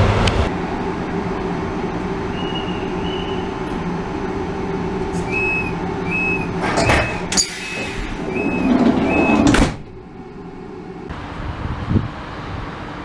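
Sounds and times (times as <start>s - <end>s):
train hum: 0.0s - 13.0s
sliding door closing: 5.0s - 10.7s
door warning beeps: 5.2s - 9.6s.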